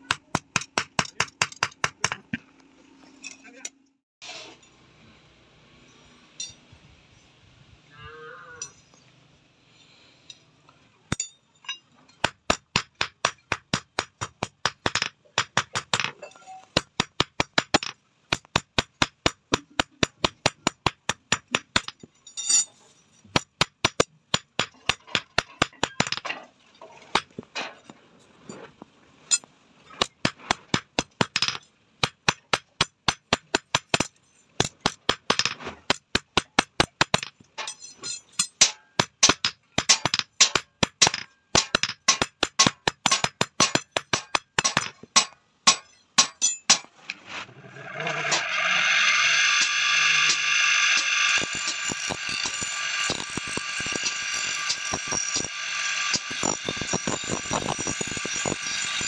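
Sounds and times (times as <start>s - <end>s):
hammer on steel rod: 38.4s - 46.9s.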